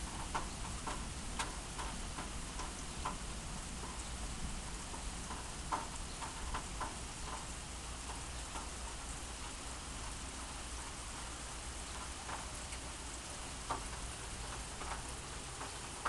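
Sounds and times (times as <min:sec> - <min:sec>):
heavy rain falling: 0:00.0 - 0:16.0
raindrops tapping: 0:00.0 - 0:16.0.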